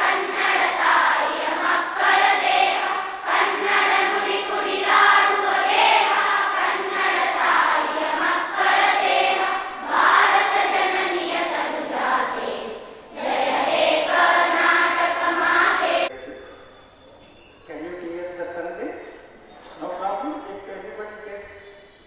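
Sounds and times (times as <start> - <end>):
children singing together: 0.0 - 16.1.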